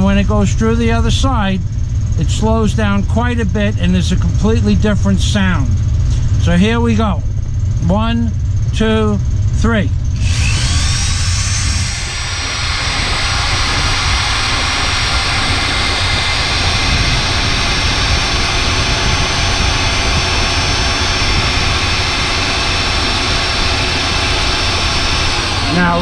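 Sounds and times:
low rumble: 0.0 - 26.0
electric drill drilling into steel: 10.2 - 26.0.

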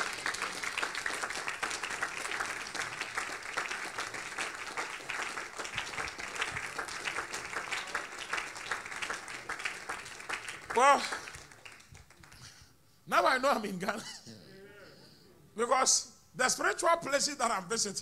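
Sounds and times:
crowd applauding: 0.0 - 12.5.

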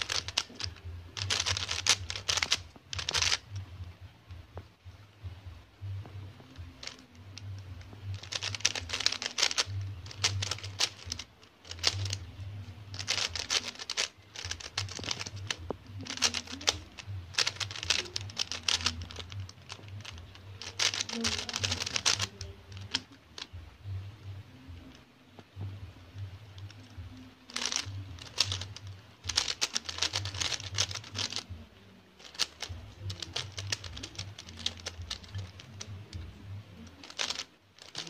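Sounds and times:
puzzle cube plastic clicks: 0.0 - 3.7, 6.4 - 23.6, 26.2 - 38.0.

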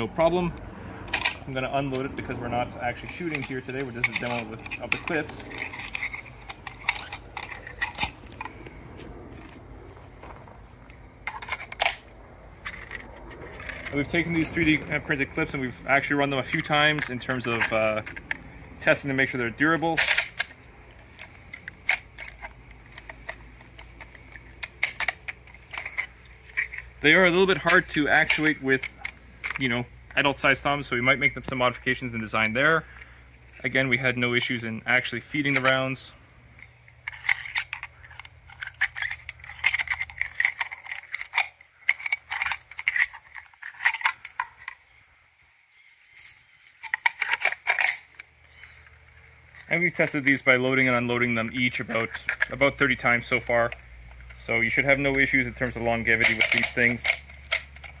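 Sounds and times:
rifle cartridges clicking together: 1.1 - 8.6, 19.7 - 29.7, 36.6 - 44.8, 46.7 - 48.3, 56.1 - 58.0
cartridges clicking into rifle magazine: 20.0 - 26.9, 46.8 - 48.3.

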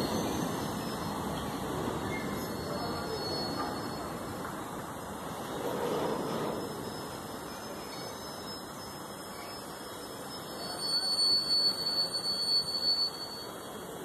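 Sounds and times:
train rushing rumble: 0.0 - 9.2.

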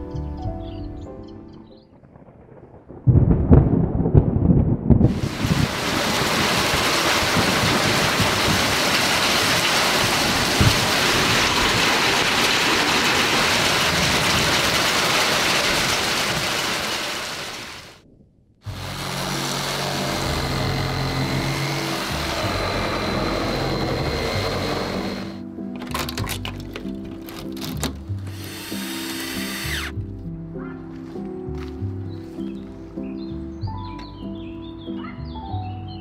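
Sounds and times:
low thunder rumble: 1.6 - 18.9
heavy rain hiss: 5.1 - 18.0, 18.7 - 25.4.

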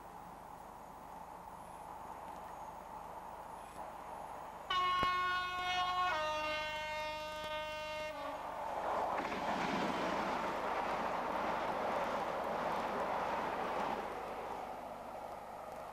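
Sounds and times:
train passing with rushing rumble: 2.8 - 15.9
locomotive two-tone horn: 4.7 - 8.6.

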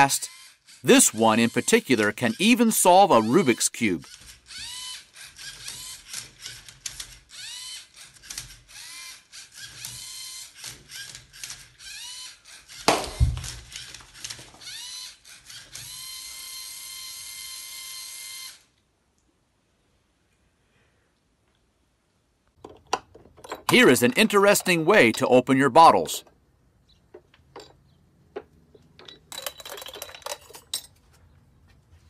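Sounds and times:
plastic gears clicking and rattling: 1.5 - 16.6, 22.6 - 25.4, 27.1 - 31.0
electric motors whining: 3.2 - 6.6, 13.6 - 18.7.

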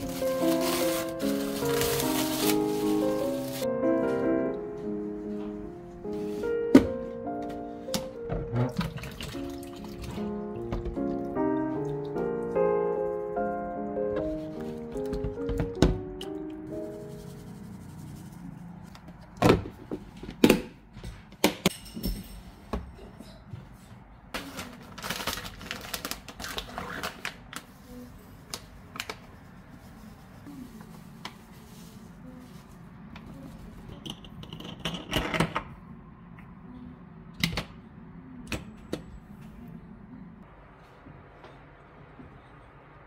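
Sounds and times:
rustling: 0.0 - 3.7.

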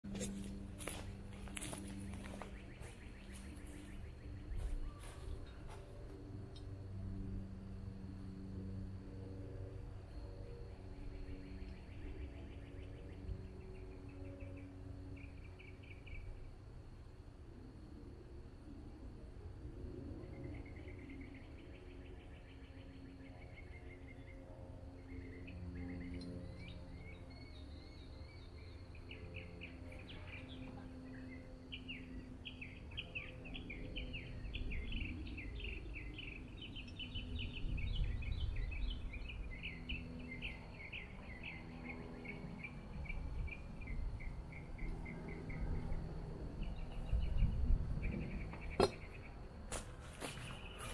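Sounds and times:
high-pitched chirping trills: 0.4 - 6.8
low rumble: 42.0 - 49.5.

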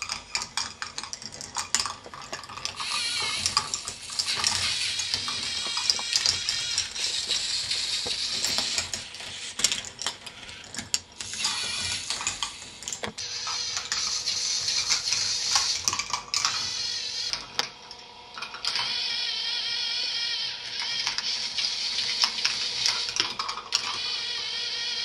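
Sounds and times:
plastic balls rolling and clattering: 0.0 - 17.7, 21.9 - 24.1.

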